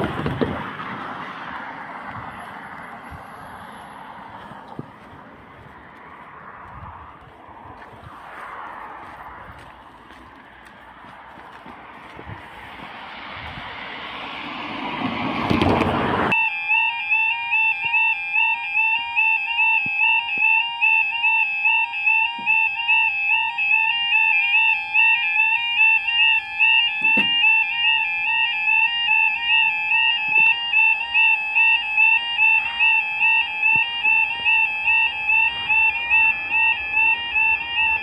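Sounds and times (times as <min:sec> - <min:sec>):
two-tone crossing alarm: 0:00.8 - 0:05.0, 0:12.1 - 0:38.0.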